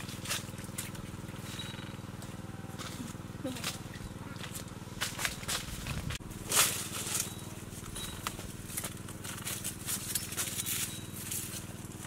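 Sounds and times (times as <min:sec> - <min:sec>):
dry leaves rustling and snapping: 0:00.0 - 0:01.5, 0:02.8 - 0:12.0
steady low hum: 0:00.0 - 0:12.0
footsteps: 0:02.2 - 0:11.6.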